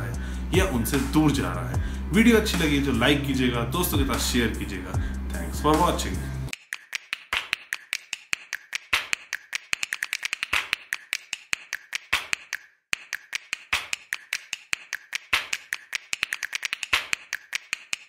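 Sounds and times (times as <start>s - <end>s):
percussive track of taps and snaps: 6.5s - 18.0s.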